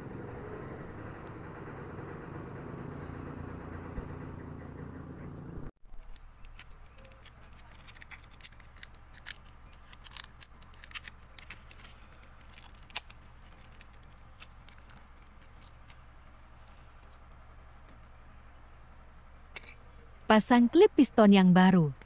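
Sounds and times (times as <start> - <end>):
steady low hum: 0.0 - 22.0
plastic wrapping crinkling: 6.0 - 16.0.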